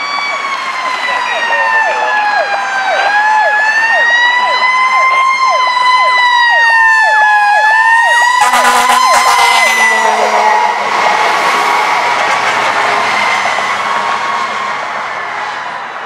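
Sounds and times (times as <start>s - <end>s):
mechanical siren wailing: 0.0s - 11.9s
electronic siren sweeping: 0.0s - 12.2s
air horn blasts: 8.1s - 10.8s.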